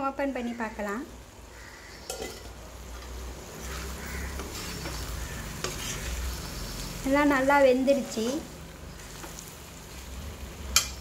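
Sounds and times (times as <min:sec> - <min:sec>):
food sizzling: 0:00.0 - 0:11.0
metal spatula scraping pan: 0:02.0 - 0:02.5, 0:03.6 - 0:10.1.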